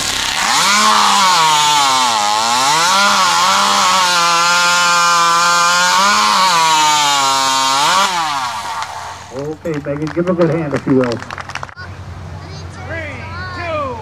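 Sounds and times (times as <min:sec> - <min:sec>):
chainsaw cutting timber: 0:00.0 - 0:10.5.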